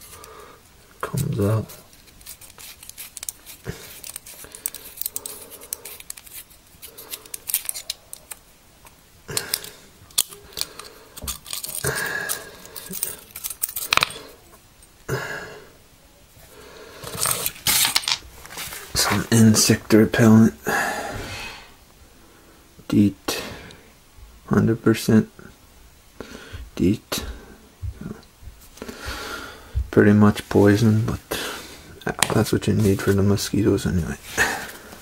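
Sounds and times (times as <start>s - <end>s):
metallic clicks and scrapes: 1.9s - 8.4s, 9.4s - 14.2s.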